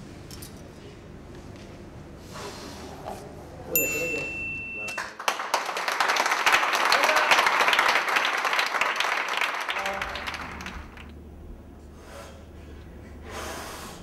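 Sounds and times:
people clapping: 4.8 - 11.2.

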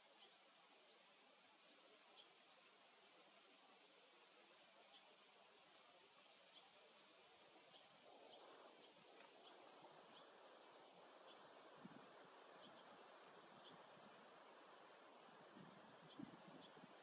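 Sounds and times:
soft background hiss: 0.0 - 17.0
bird fledgling chirping: 16.0 - 16.9.

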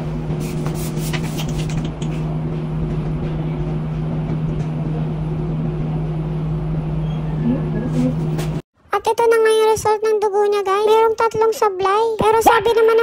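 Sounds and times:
low machine hum: 0.0 - 8.6.

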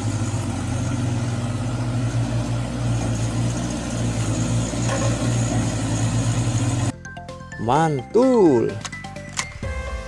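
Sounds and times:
engine idling: 0.0 - 7.1.

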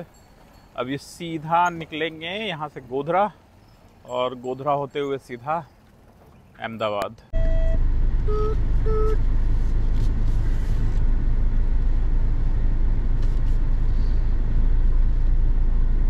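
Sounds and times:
road and engine rumble: 0.0 - 16.0
short beeps: 7.3 - 9.2.

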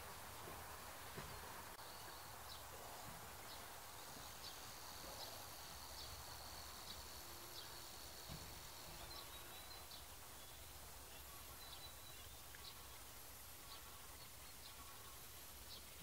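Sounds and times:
soft chirps: 1.8 - 13.0.

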